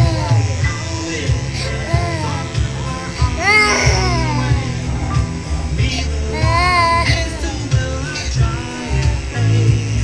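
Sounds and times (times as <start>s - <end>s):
toddler wailing: 0.0s - 4.8s, 6.4s - 7.3s
music with bass beat and singing: 0.0s - 10.0s.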